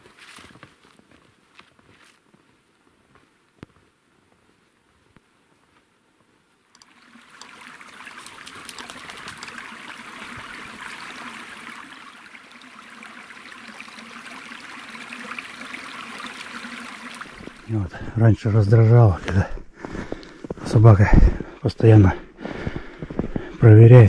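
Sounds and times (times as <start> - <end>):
forest stream babbling: 6.6 - 24.0.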